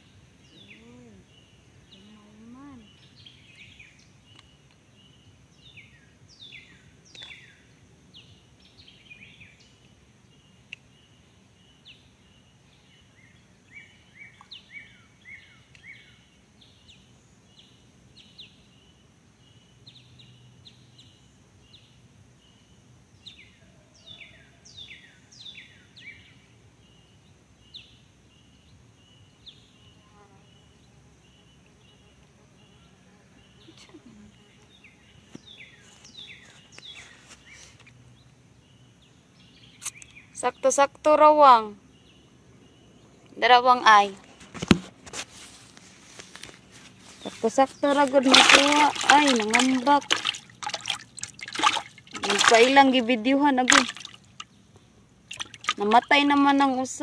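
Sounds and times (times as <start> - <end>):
birds chirping: 0.0 - 45.0, 45.9 - 57.0
pulsing insect trill: 47.4 - 57.0.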